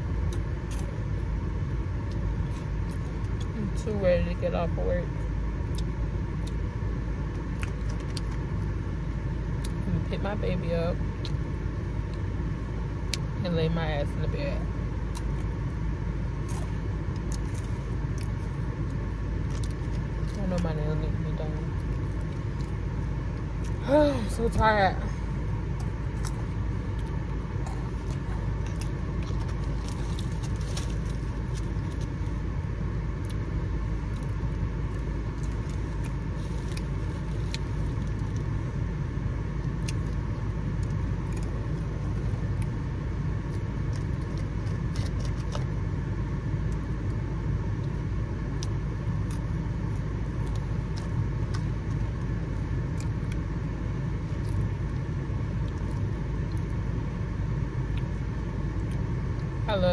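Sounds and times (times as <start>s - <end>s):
car engine idling: 0.0s - 59.9s
person eating crunchy snack: 25.7s - 32.4s, 43.4s - 45.8s.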